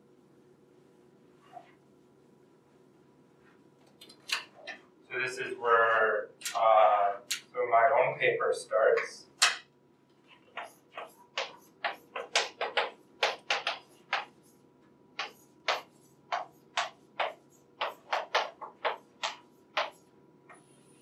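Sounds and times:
chalk tapping and scratching on blackboard: 0:10.2 - 0:20.7.

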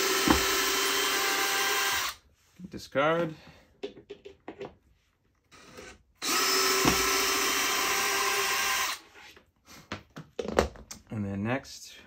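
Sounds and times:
cordless drill drilling: 0:00.0 - 0:02.2, 0:05.5 - 0:09.0.

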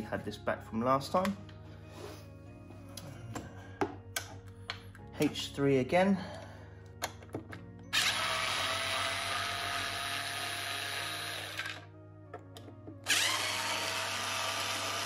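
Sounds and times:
electric screwdriver whirring: 0:07.9 - 0:11.9, 0:13.0 - 0:15.0.

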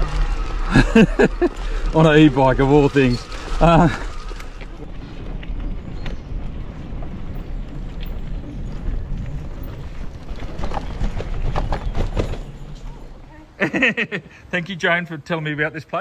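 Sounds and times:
wind buffeting microphone: 0:01.0 - 0:13.6.

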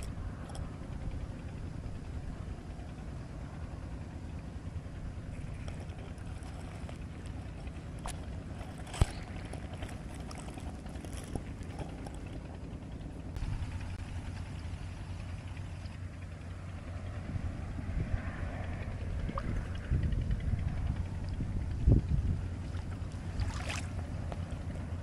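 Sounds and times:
low rumble: 0:00.0 - 0:25.0
wind buffeting microphone: 0:17.0 - 0:25.0.

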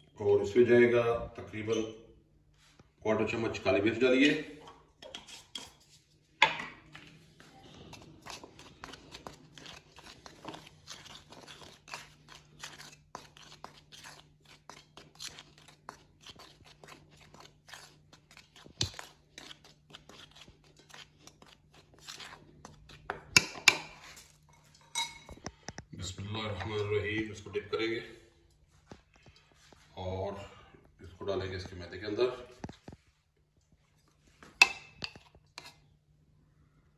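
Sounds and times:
plastic spoon scraping dry mix: 0:05.0 - 0:06.1, 0:07.6 - 0:24.4, 0:35.0 - 0:35.9.

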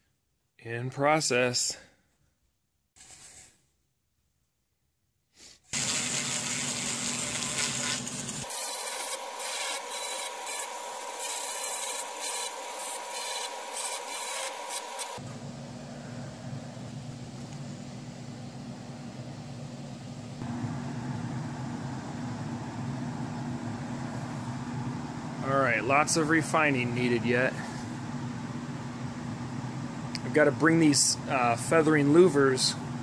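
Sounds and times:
power carving tool grinding wood: 0:05.8 - 0:15.2
small grinder whining: 0:05.8 - 0:15.2.

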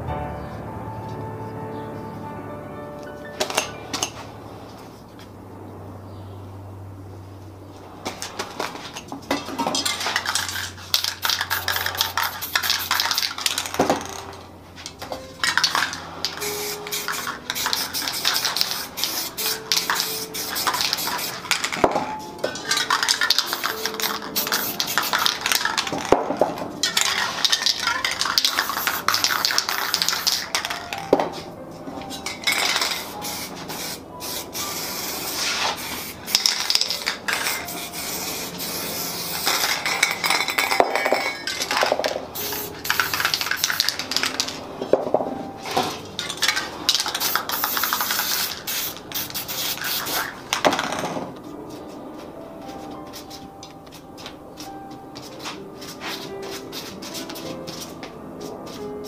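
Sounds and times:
metal cans clinking: 0:08.8 - 0:18.6, 0:19.7 - 0:31.3, 0:32.1 - 0:33.1, 0:36.3 - 0:37.7, 0:39.4 - 0:48.6
spray paint can hissing: 0:09.8 - 0:14.2, 0:15.4 - 0:21.9, 0:22.6 - 0:31.1, 0:32.2 - 0:44.6, 0:46.2 - 0:51.0, 0:55.5 - 0:58.9.

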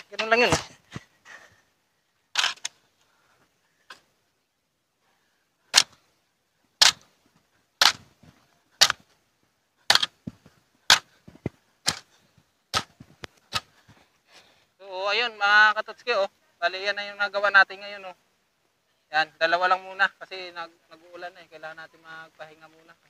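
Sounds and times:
hoe chopping into soil: 0:05.7 - 0:06.0, 0:06.8 - 0:07.0, 0:07.8 - 0:08.2, 0:08.8 - 0:09.1, 0:09.9 - 0:12.1, 0:12.7 - 0:13.9.

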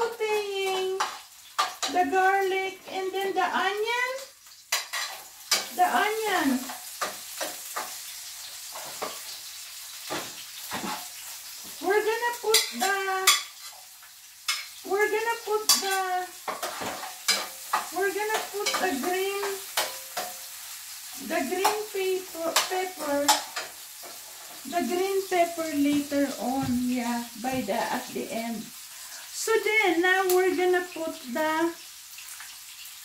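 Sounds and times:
garlic and onion sauteing in oil: 0:00.0 - 0:33.0
utensil scraping pan: 0:10.1 - 0:11.2, 0:15.7 - 0:20.5.

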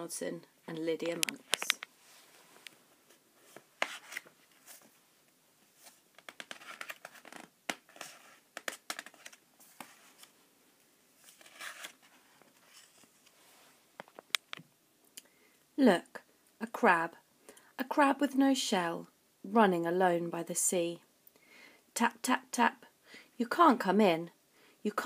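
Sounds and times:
book pages rustling: 0:01.0 - 0:05.0, 0:05.6 - 0:10.4, 0:11.2 - 0:14.6.

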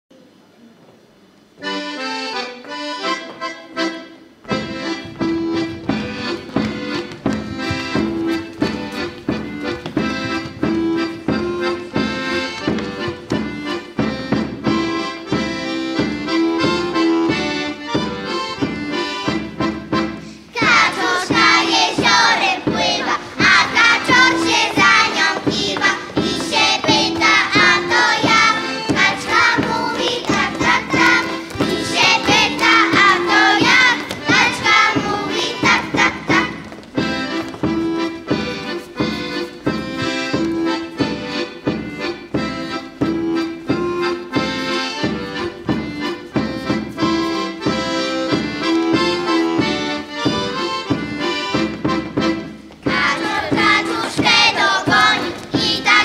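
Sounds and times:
accordion folk dance tune: 0:01.5 - 0:56.0
children's choir singing: 0:20.5 - 0:36.8, 0:52.8 - 0:56.0
drum beat: 0:20.8 - 0:36.6.

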